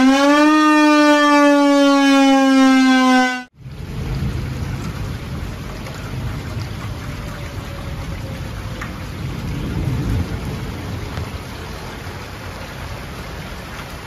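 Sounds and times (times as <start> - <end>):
warning siren falling tone: 0.0 - 3.5
heavy rain: 3.5 - 14.0
low rumbling thunder: 3.6 - 13.7.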